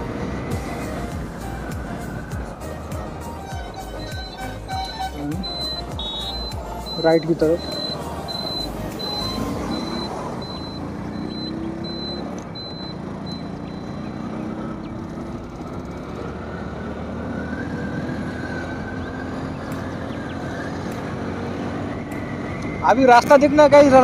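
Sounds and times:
motorcycle engine running: 0.0s - 17.1s
wind and road noise: 0.0s - 24.0s
turn-signal beeper ticking: 4.0s - 14.1s.

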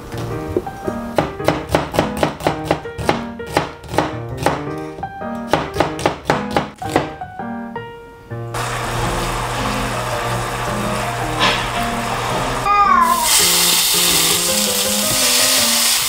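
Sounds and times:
soft background music: 0.0s - 8.6s
knife chopping onion on board: 1.2s - 7.2s.

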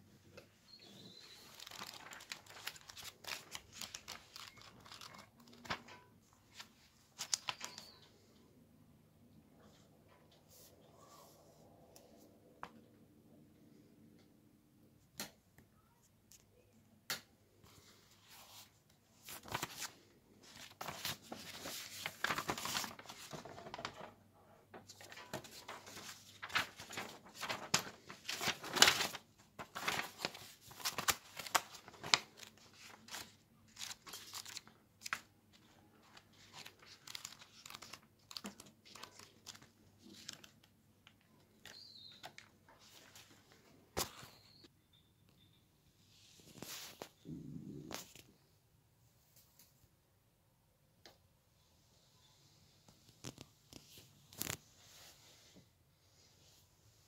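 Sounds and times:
paper pages rustling: 0.7s - 8.0s, 18.2s - 44.5s, 46.4s - 47.2s, 52.9s - 55.5s.

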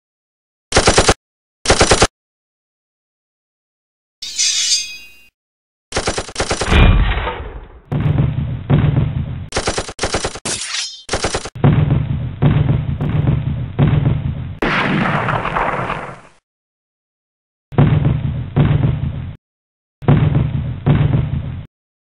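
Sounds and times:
machine-gun bursts: 0.7s - 2.1s, 5.9s - 6.8s, 9.5s - 10.5s, 11.1s - 11.6s.

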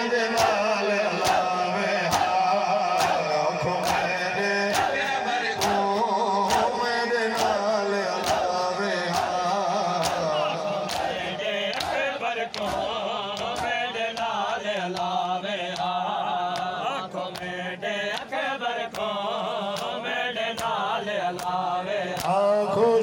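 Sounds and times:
men chanting a lament: 0.0s - 23.0s
crowd chest-beating strikes: 0.1s - 14.3s.

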